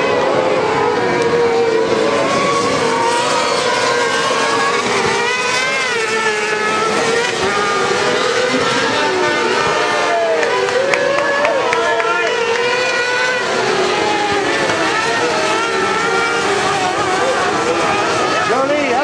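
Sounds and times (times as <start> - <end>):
engine accelerating past: 0.0 - 19.0
racing engines revving high: 0.0 - 19.0.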